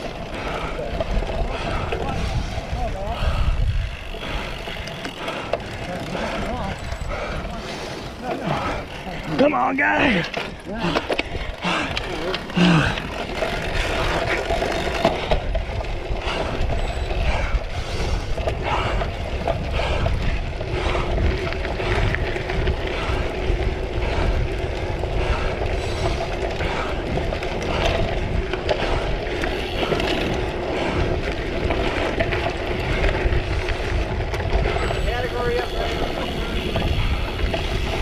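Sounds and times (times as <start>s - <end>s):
wind rushing on microphone: 0.0s - 4.8s, 15.2s - 38.0s
bike rattles and knocks: 0.0s - 38.0s.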